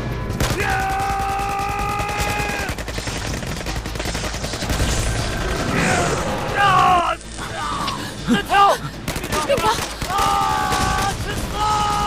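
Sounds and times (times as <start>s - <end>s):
rising cry: 5.0s - 8.9s
man yelling: 10.1s - 12.0s.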